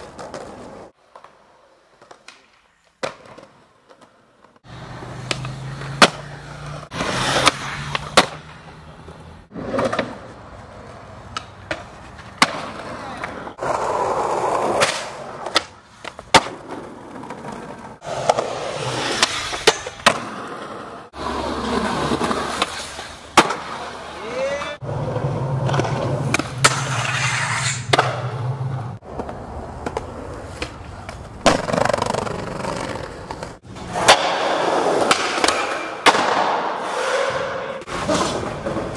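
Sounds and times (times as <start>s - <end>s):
skateboard popping and landing: 0.0s - 38.9s
skateboard wheels rolling on concrete: 0.0s - 38.9s.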